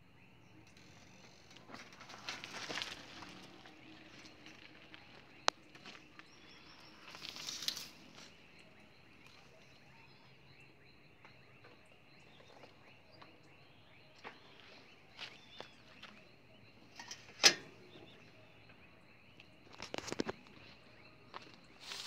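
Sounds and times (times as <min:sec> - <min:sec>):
rustles and clicks: 0:00.7 - 0:08.4.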